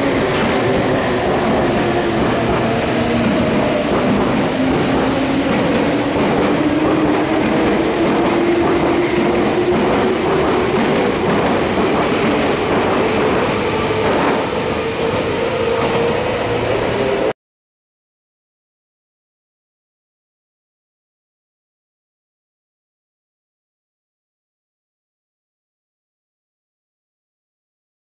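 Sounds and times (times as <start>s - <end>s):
train wheels clattering on rails: 0.0s - 16.2s.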